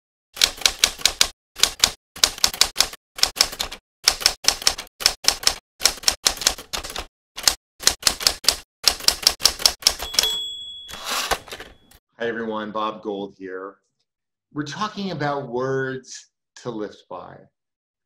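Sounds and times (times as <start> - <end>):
typewriter keys clacking: 0.4 - 11.9.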